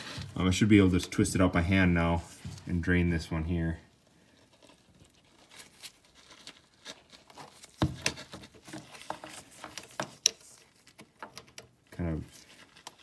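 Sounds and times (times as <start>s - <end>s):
glove rustle: 0.0s - 11.0s, 12.0s - 13.0s
metal clicks and knocks: 9.5s - 11.8s.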